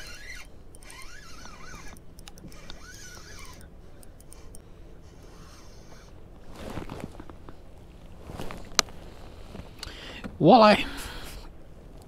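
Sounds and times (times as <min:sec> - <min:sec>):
fishing reel ticking: 0:00.0 - 0:04.6.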